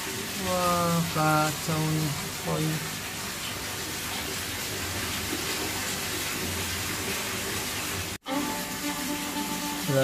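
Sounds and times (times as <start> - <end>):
running water rushing: 0.0 - 10.0
music: 8.2 - 10.0.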